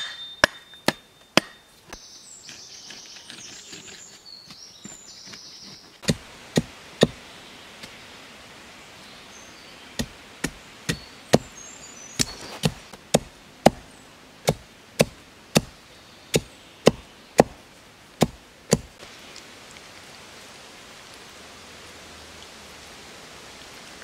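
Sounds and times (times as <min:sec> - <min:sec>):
machete chopping saplings: 0:00.0 - 0:07.2, 0:10.0 - 0:11.6, 0:12.2 - 0:19.0.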